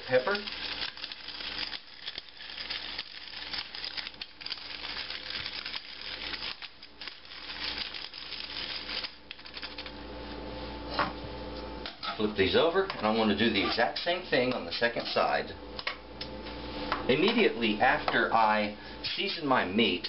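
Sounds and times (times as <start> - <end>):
pepper mill grinding: 0.0 - 10.0.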